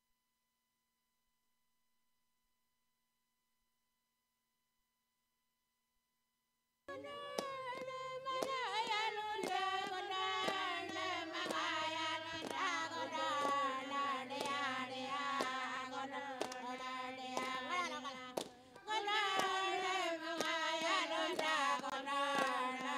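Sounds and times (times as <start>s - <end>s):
voices singing a chant: 6.9s - 22.9s.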